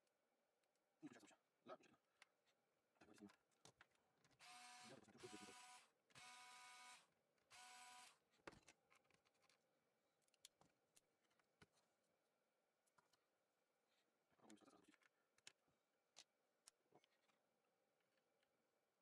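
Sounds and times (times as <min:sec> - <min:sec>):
electric screwdriver whirring: 0:04.4 - 0:08.2.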